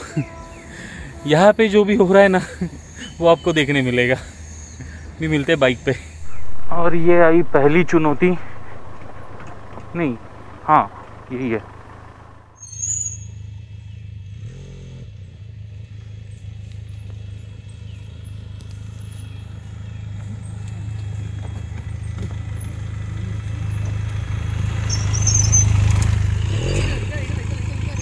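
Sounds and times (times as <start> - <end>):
motorcycle engine at low revs: 6.2 - 12.6.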